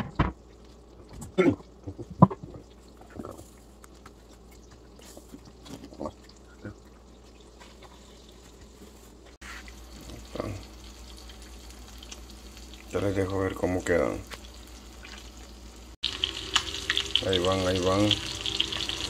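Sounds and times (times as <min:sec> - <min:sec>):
fish frying in butter sizzling: 0:09.5 - 0:19.0.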